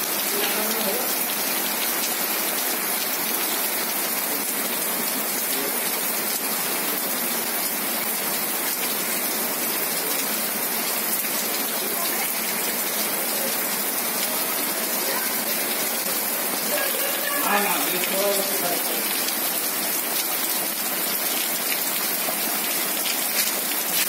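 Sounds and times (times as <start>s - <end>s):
rain falling on leaves: 0.0s - 24.0s.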